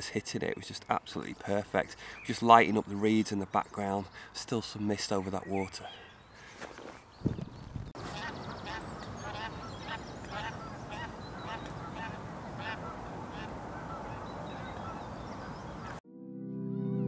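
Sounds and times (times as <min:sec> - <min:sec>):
goose honking: 0:08.0 - 0:16.0.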